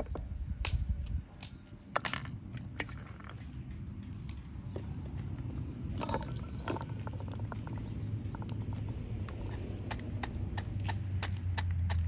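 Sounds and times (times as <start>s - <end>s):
wooden pestle pounding: 9.9s - 12.0s.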